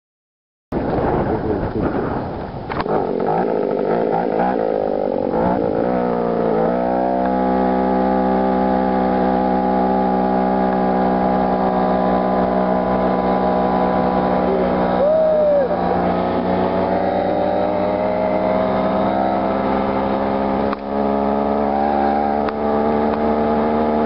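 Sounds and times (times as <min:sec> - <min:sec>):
wind rush: 0:00.8 - 0:03.2
chainsaw engine revving: 0:02.8 - 0:24.0.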